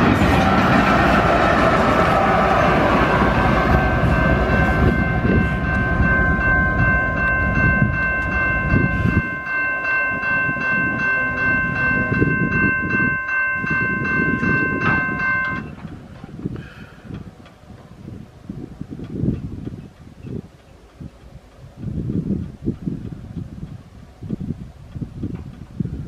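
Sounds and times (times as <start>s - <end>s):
railroad crossing bell ringing: 0.0s - 15.9s
freight train rumbling past: 0.0s - 26.0s.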